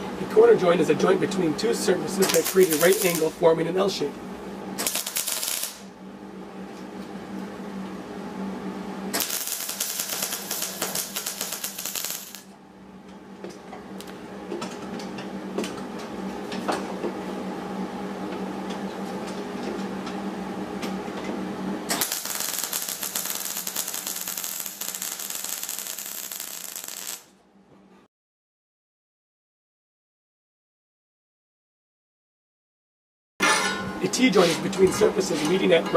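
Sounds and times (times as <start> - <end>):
steady low hum: 0.0 - 28.1
welder arc crackling: 2.2 - 3.4, 4.8 - 5.9, 9.2 - 12.5, 22.0 - 27.3.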